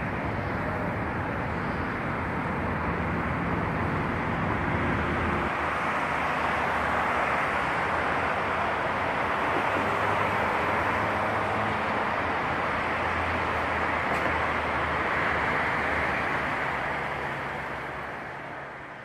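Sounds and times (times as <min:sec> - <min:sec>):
city traffic rushing: 0:00.0 - 0:19.0.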